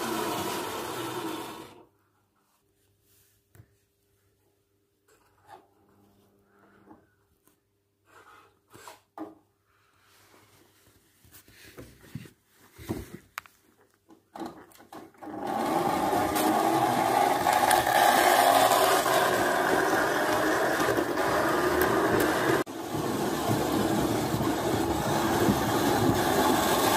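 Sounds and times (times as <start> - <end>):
wheels rolling on rails: 15.2 - 26.9
model train motor whir: 15.3 - 26.9.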